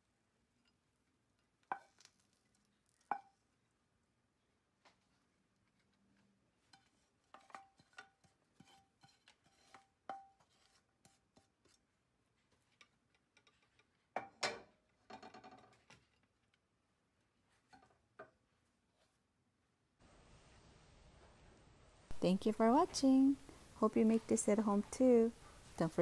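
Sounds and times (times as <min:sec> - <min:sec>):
wooden spatula scraping a pan: 0:04.9 - 0:13.9.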